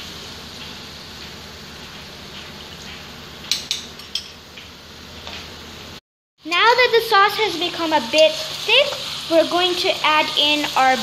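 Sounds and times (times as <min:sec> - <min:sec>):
chicken hissing in a wok: 0:08.0 - 0:11.0.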